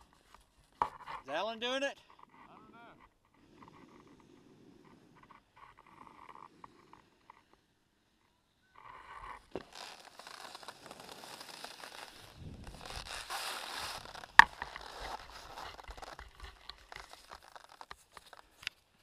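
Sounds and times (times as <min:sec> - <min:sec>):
crunching and rustling: 0:08.8 - 0:19.0
skis sliding over snow: 0:09.2 - 0:18.6.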